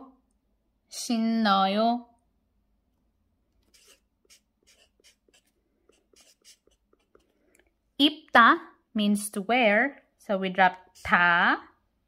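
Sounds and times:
marker scratching on paper: 0:03.6 - 0:07.4, 0:10.7 - 0:11.4.

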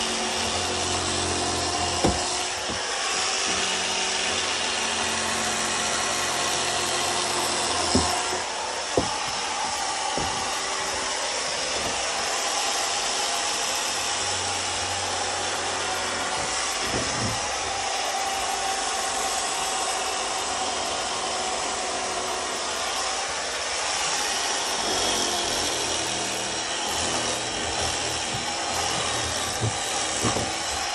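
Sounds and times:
electric saw cutting foam: 0:00.0 - 0:30.9
sharp knocks: 0:01.9 - 0:02.8, 0:07.7 - 0:10.8, 0:27.7 - 0:30.9.

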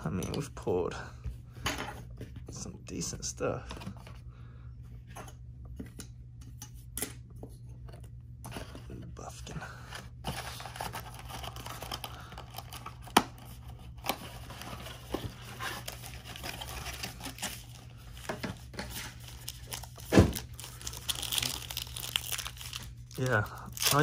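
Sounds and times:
foil packs crinkling and tearing: 0:10.4 - 0:18.2, 0:19.0 - 0:24.0.

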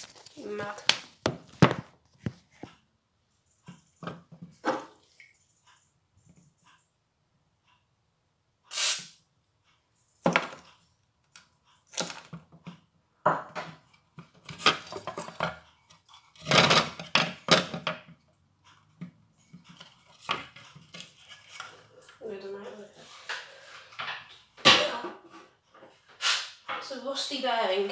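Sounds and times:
plastic parts knocking and clattering: 0:00.0 - 0:02.8, 0:10.2 - 0:10.8, 0:11.9 - 0:18.2, 0:18.9 - 0:21.7
brief scrape: 0:08.7 - 0:09.2, 0:26.2 - 0:26.6.

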